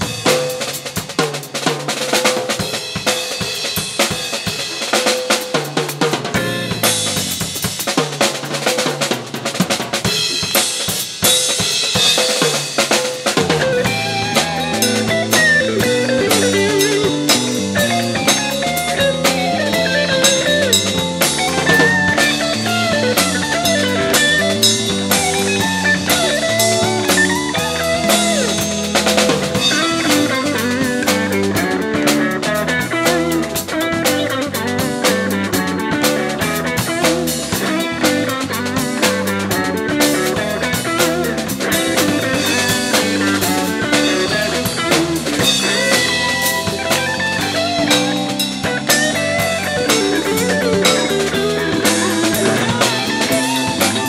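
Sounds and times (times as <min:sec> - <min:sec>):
drum kit: 0:00.0 - 0:54.0
guitar: 0:00.0 - 0:54.0
jazz-funk band playing: 0:00.0 - 0:54.0.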